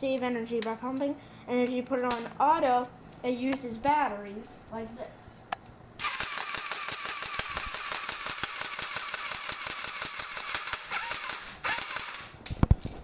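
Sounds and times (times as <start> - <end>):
electric airsoft rifle firing: 6.0 - 12.4.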